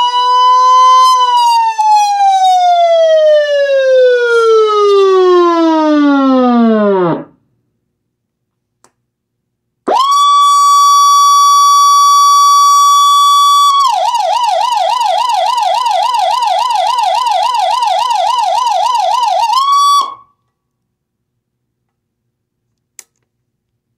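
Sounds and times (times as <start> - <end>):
electronic siren: 0.0 - 7.4, 9.9 - 20.4.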